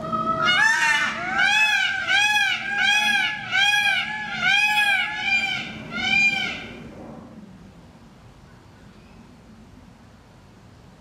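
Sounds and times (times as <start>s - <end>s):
peafowl calling: 0.0s - 6.8s.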